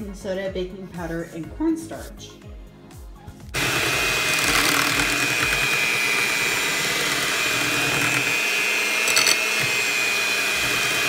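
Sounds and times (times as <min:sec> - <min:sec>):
electric hand mixer whining: 0:03.5 - 0:11.0.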